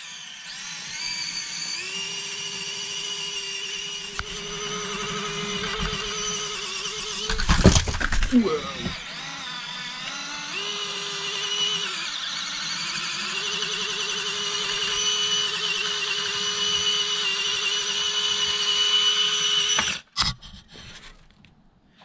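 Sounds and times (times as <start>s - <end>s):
small electric motor whining: 0.0s - 20.2s.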